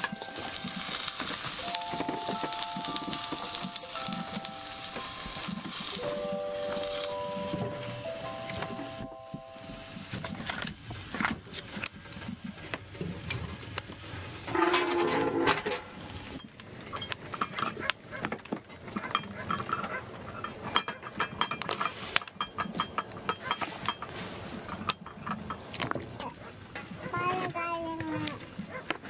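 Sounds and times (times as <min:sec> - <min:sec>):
food and dishes knocking and clinking: 0:00.0 - 0:03.8, 0:14.5 - 0:26.1.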